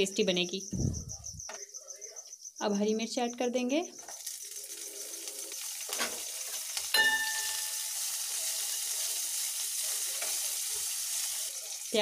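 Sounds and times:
food sizzling in hot oil: 3.8 - 12.0.

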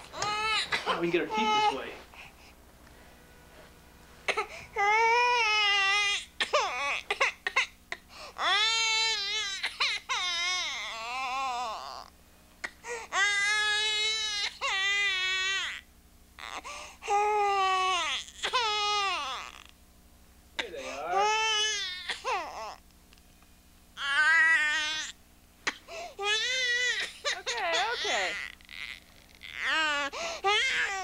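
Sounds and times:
baby crying: 0.1 - 1.9, 4.3 - 7.8, 8.4 - 12.1, 12.9 - 15.8, 16.4 - 19.7, 20.6 - 22.8, 24.0 - 31.0.

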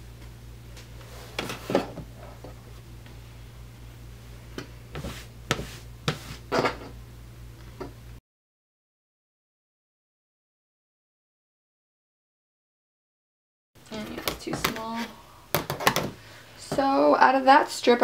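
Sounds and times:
steady low hum: 0.0 - 8.2.

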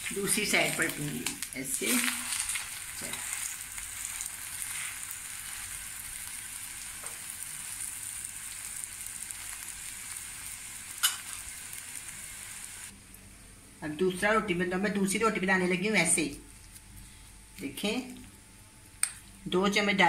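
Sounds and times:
flatbread sizzling in fat: 0.0 - 12.9.

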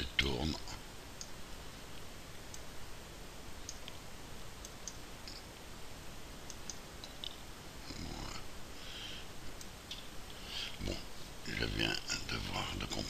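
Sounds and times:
faint steady hiss: 0.0 - 13.0
computer clicks: 3.6 - 4.0, 4.6 - 5.5, 6.4 - 7.4.

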